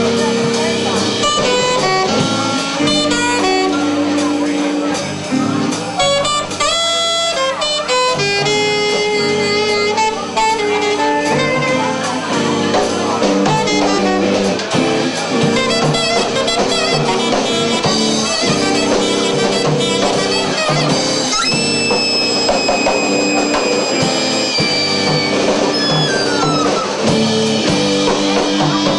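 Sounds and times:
live rock band playing: 0:00.0 - 0:28.9
saxophone lead line: 0:00.0 - 0:28.9
saxophone high note held: 0:06.0 - 0:12.6, 0:15.6 - 0:27.2.

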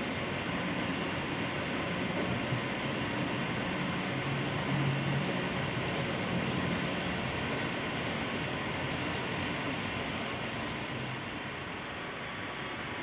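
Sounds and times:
model train wheels rumbling on rails: 0:00.0 - 0:13.0.

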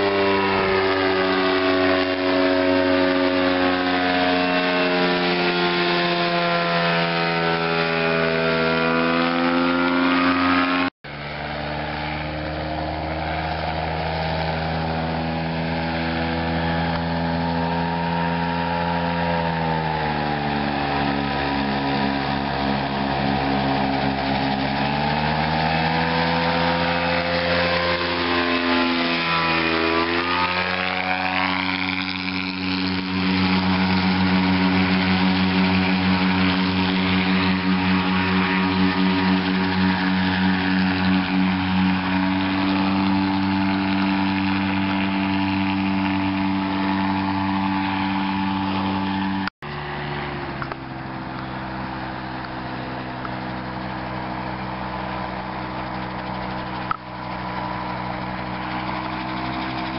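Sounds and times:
aircraft engine and propeller droning: 0:00.0 - 0:59.9.

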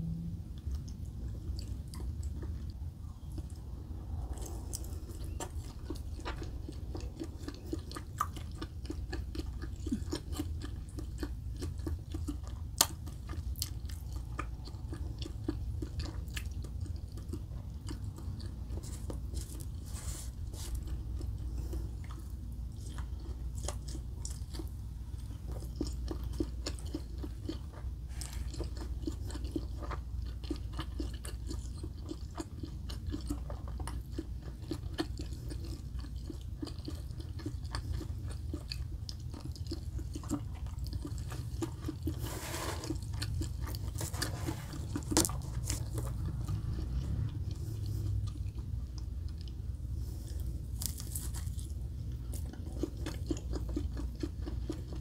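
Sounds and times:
low rumble: 0:00.0 - 0:08.9, 0:41.3 - 0:50.6
chewing and crunching: 0:00.2 - 0:55.0.

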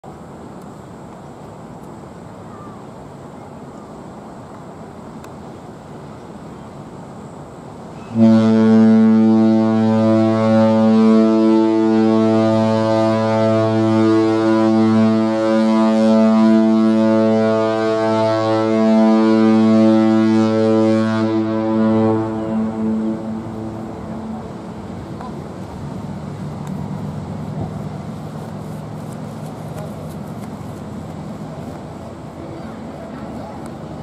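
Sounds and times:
deep ship horn blast: 0:08.0 - 0:28.9.

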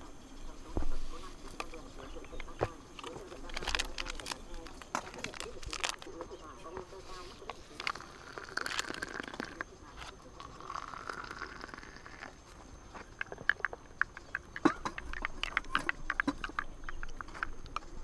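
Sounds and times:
hot water pouring into mug: 0:10.6 - 0:12.3.

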